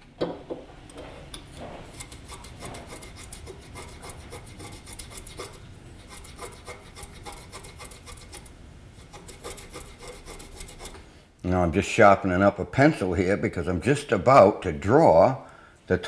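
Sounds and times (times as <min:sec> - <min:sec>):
pencil scraping on plane blade: 0:01.8 - 0:11.1.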